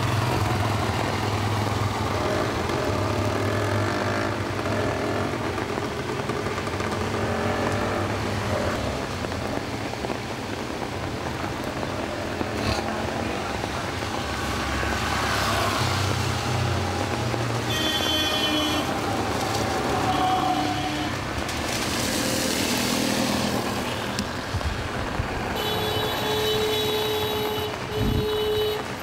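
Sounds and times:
vehicles passing on wet road: 0.0s - 29.0s
car horn toots: 17.7s - 18.9s, 25.6s - 28.8s.

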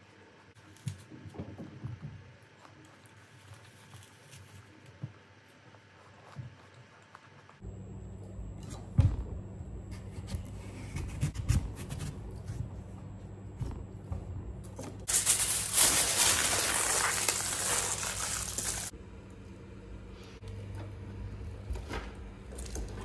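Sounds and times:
low steady hum: 0.0s - 23.0s
aluminium foil crinkling: 15.0s - 18.9s.

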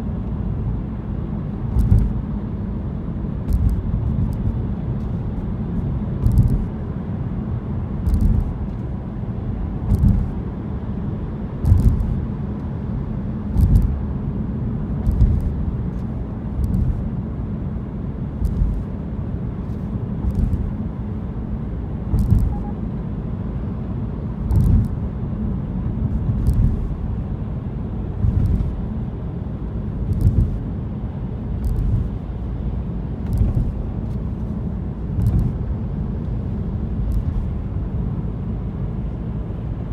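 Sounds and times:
car engine and road noise: 0.0s - 39.9s
short sharp thumps: 1.7s - 2.2s, 3.5s - 4.6s, 6.2s - 6.7s, 9.8s - 10.4s, 15.0s - 15.6s, 16.6s - 17.1s, 20.2s - 20.8s, 22.1s - 22.7s, 24.5s - 25.0s, 28.2s - 28.8s, 30.1s - 30.6s.

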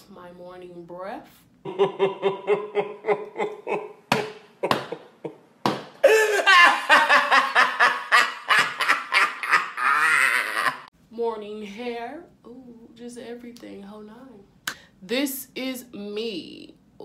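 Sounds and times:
man laughing hysterically: 1.7s - 10.9s.

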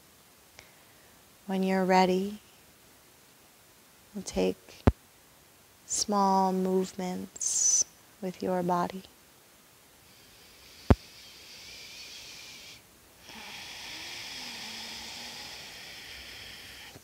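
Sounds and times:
person breathing deeply: 10.0s - 17.0s.

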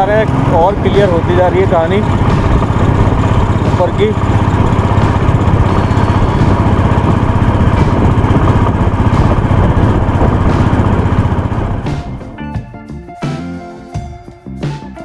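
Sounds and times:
motorcycle engine under load: 0.0s - 12.4s.

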